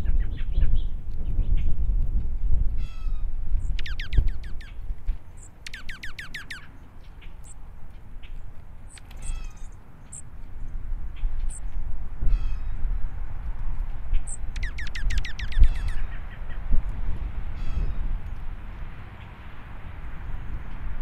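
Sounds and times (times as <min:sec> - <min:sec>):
bird rapid down-slurred trill: 0:02.8 - 0:04.8, 0:05.4 - 0:07.6, 0:08.9 - 0:10.3, 0:14.2 - 0:16.4
bird chip notes: 0:02.8 - 0:07.6, 0:08.2 - 0:10.3, 0:14.2 - 0:16.2.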